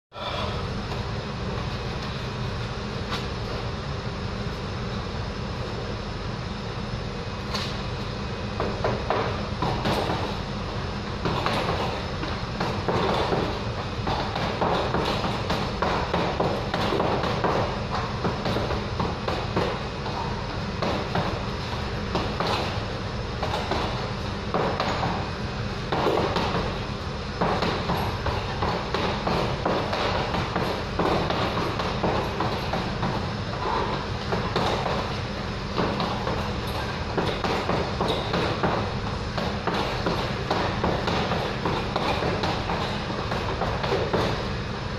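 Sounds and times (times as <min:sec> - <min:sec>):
low machinery hum: 0:00.1 - 0:44.9
gloves thudding on punching bag: 0:08.6 - 0:10.4, 0:11.2 - 0:21.5, 0:23.4 - 0:26.8, 0:27.4 - 0:44.5.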